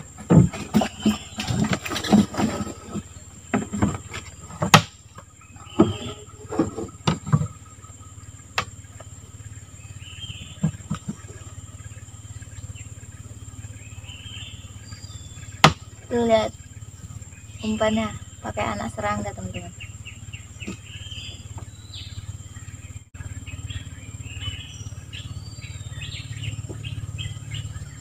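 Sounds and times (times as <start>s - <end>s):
knocks and thumps on wooden boat: 0.0s - 7.7s, 10.4s - 11.5s
high insect drone: 0.0s - 28.0s.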